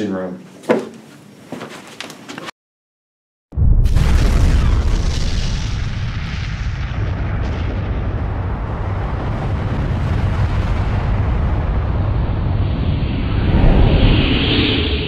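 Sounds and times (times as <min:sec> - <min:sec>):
explosion blast and rumble: 0:03.5 - 0:15.0.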